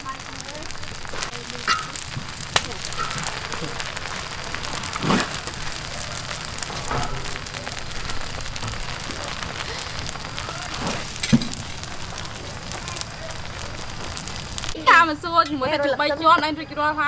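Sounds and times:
stir fry sizzling in wok: 0:00.0 - 0:15.1
metal spatula scraping wok: 0:01.0 - 0:12.7.

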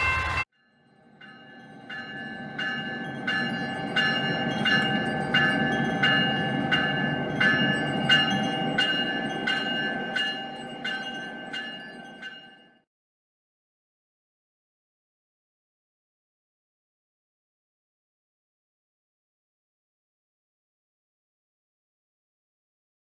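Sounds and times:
train rumble: 0:00.0 - 0:00.4
locomotive bell ringing: 0:00.0 - 0:12.9.

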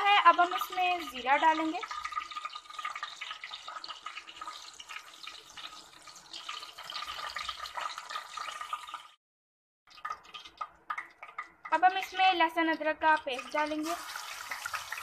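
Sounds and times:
seeds sizzling in hot oil: 0:00.0 - 0:09.1, 0:13.2 - 0:15.0.

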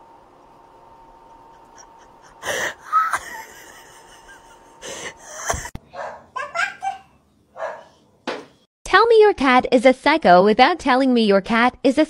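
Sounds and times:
person laughing breathily: 0:01.2 - 0:05.8.

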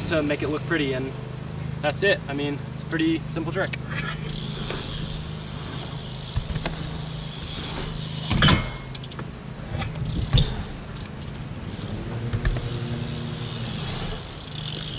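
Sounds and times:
low motor hum: 0:00.0 - 0:14.9
bike tyres rolling on wooden ramp: 0:03.9 - 0:14.9.

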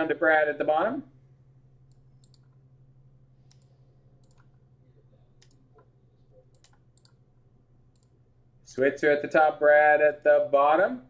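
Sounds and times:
low electrical hum: 0:00.0 - 0:11.0
mouse and keyboard clicks: 0:01.9 - 0:02.6, 0:03.4 - 0:04.6, 0:05.4 - 0:07.2.

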